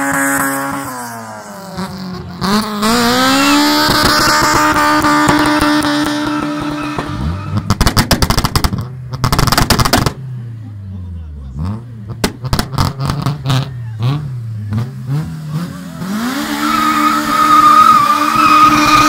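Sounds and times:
car engine revving hard: 0.0s - 10.2s, 11.5s - 19.0s
exhaust pops and bangs: 3.8s - 10.2s, 12.1s - 13.7s
tyres spinning on tarmac: 15.9s - 19.0s.

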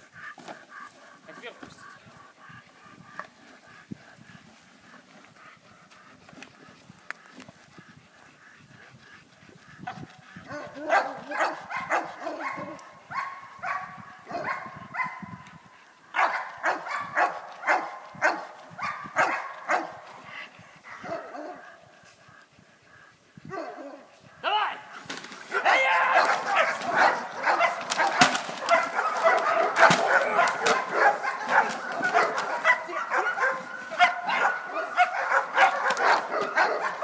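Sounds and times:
dog barking: 10.5s - 15.4s, 16.1s - 20.0s, 20.9s - 21.7s, 23.5s - 24.1s, 25.5s - 37.0s.

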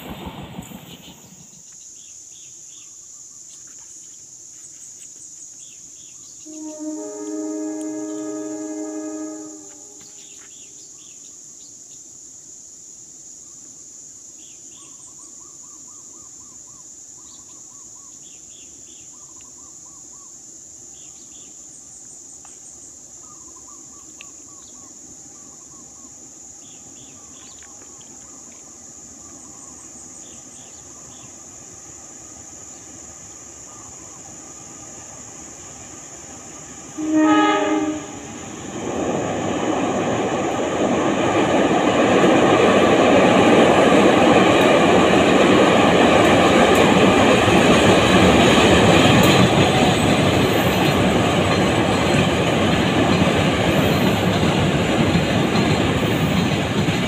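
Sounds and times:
train approaching: 0.0s - 2.8s, 5.6s - 11.5s, 20.6s - 57.0s
insects chirping: 0.0s - 57.0s
locomotive horn blast: 6.5s - 10.1s, 37.0s - 38.3s.

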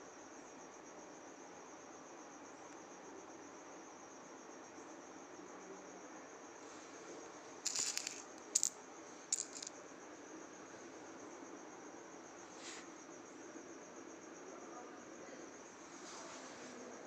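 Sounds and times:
metal coins clinking: 7.7s - 9.7s.

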